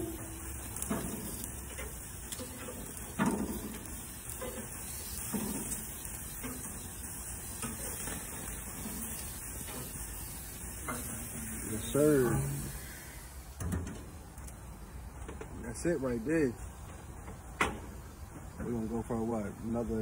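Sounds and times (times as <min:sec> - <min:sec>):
metal tongs clinking on grate: 0:00.0 - 0:10.1, 0:10.8 - 0:12.7
steaks sizzling on a grill: 0:00.0 - 0:20.0.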